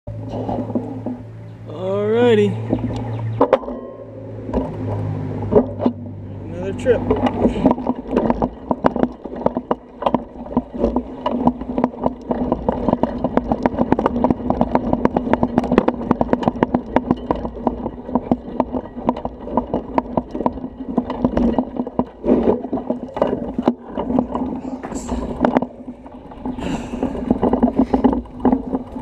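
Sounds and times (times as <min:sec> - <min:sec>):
bicycle rattling on bumpy trail: 0:00.1 - 0:29.0
steady low rumble: 0:00.1 - 0:29.0.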